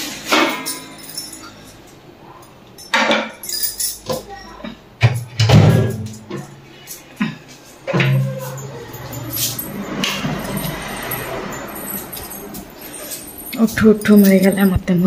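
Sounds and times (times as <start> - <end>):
utensils clinking: 0.0 - 15.0.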